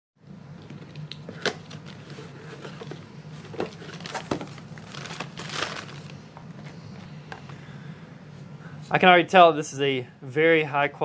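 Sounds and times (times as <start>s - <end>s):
steady low hum: 0.2s - 11.0s
plastic crinkling: 1.9s - 6.2s
cardboard box being opened: 2.0s - 6.1s.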